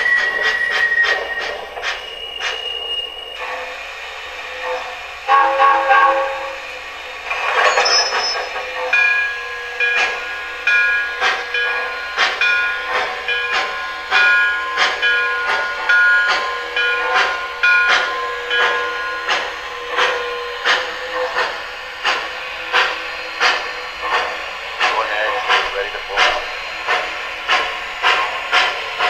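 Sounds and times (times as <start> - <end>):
steam hiss: 0.0 - 29.0
steam locomotive chuffing: 0.0 - 29.0
model train whistle toot: 5.3 - 6.7.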